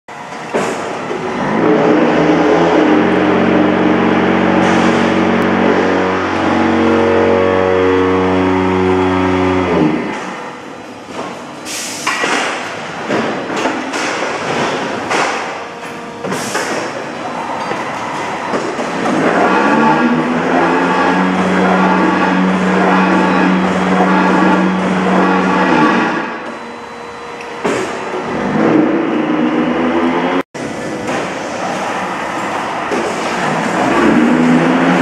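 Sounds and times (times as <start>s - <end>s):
electric motor hum: 1.5s - 10.7s, 19.1s - 27.5s.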